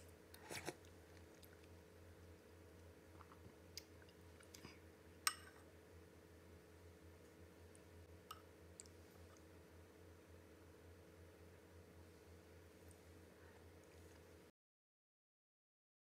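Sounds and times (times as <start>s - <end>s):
faint steady hum: 0.0s - 14.5s
metal spoon clicking on ceramic bowl: 5.3s - 5.6s.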